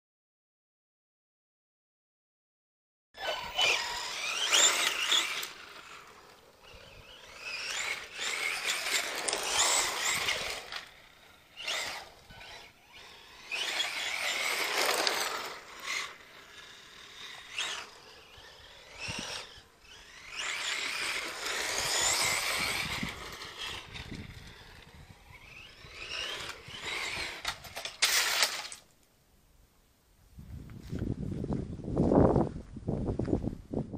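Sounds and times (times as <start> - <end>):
electric motor whining: 3.2 - 28.8
tyres on gravel: 3.2 - 29.0.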